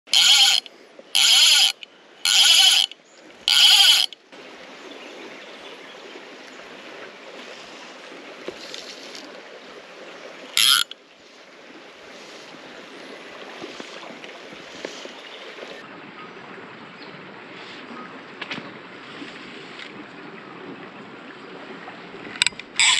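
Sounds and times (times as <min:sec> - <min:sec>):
fly reel buzzing: 0:00.1 - 0:04.2, 0:10.6 - 0:11.0
creek water rushing: 0:00.1 - 0:22.9.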